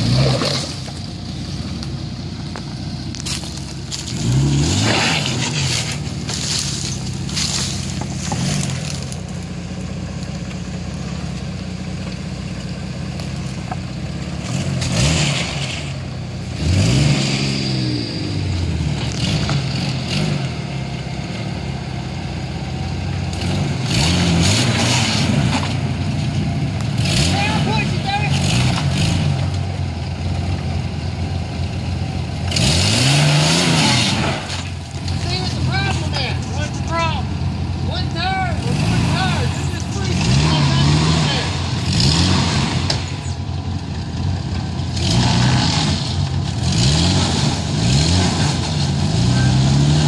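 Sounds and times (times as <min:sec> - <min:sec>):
engine revving: 0:00.0 - 0:02.0, 0:03.1 - 0:09.9, 0:13.4 - 0:50.0
tyres scrabbling and scraping: 0:01.7 - 0:09.4.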